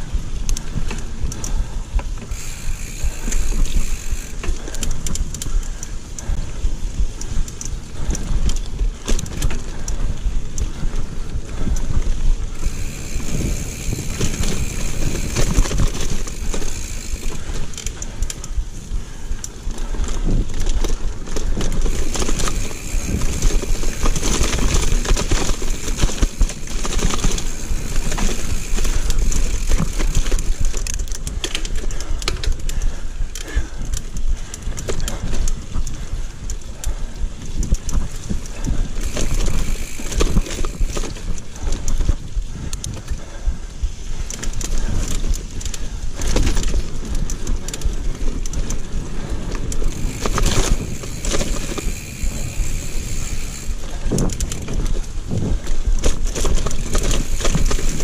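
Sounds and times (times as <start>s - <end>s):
bike clattering and rattling: 0.0s - 58.0s
wind on microphone: 0.0s - 58.0s
tyres rumbling on dirt: 12.5s - 17.8s, 21.4s - 30.8s, 39.0s - 41.6s, 49.8s - 58.0s.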